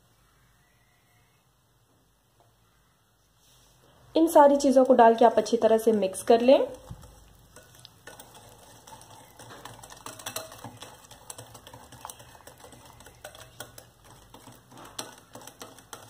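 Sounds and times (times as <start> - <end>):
whisk clicking against glass bowl: 4.8 - 16.0.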